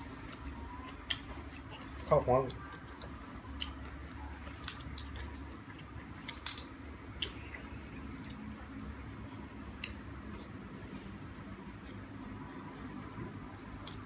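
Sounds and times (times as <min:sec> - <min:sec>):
low steady hum: 0:00.0 - 0:14.0
chewing clicks and smacks: 0:13.5 - 0:14.0.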